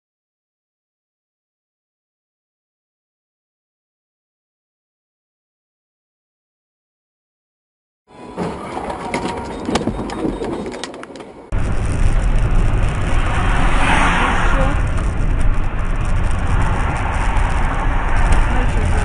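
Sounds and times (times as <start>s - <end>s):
engine and road rumble: 8.1s - 19.0s
clicks: 8.6s - 11.5s.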